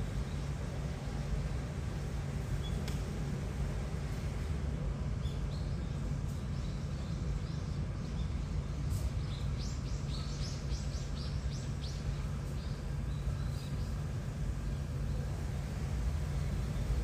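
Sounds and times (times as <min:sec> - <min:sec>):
steady low hum: 0:00.0 - 0:17.0
small birds chirping: 0:05.1 - 0:15.4.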